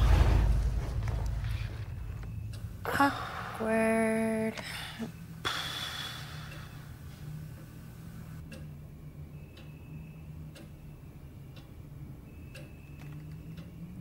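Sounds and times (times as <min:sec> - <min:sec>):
low steady hum: 0:00.0 - 0:14.0
clock ticking: 0:08.4 - 0:08.9, 0:09.6 - 0:14.0.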